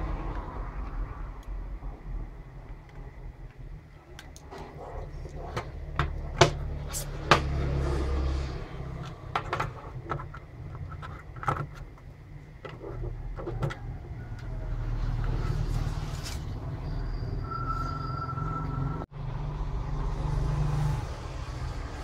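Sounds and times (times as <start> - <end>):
low steady rumble: 0.0 - 10.8
plastic case clicking and knocking: 9.0 - 13.9.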